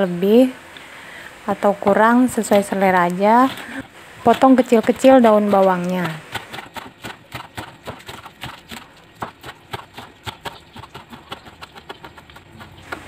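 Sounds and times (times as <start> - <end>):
knife chopping on wooden board: 3.4 - 13.0.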